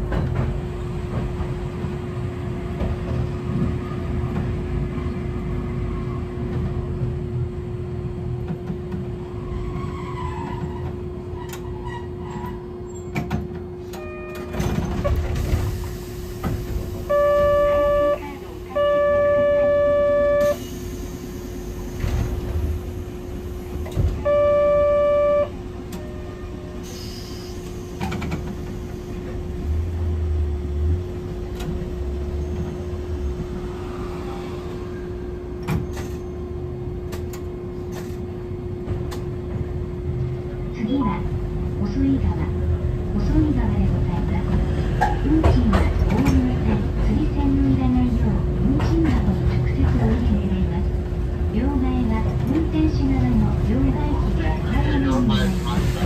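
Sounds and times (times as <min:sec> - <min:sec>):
tram running hum: 0:00.0 - 0:56.0
loud buzzer tone: 0:17.1 - 0:18.2, 0:18.8 - 0:20.6, 0:24.2 - 0:25.6.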